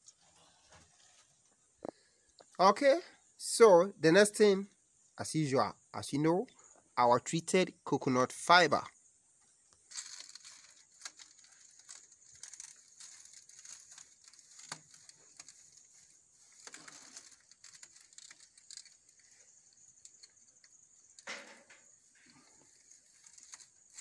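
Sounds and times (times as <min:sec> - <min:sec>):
dry fibre rustling and crackling: 0:00.0 - 0:02.4, 0:09.7 - 0:24.0
small clicks: 0:09.7 - 0:24.0.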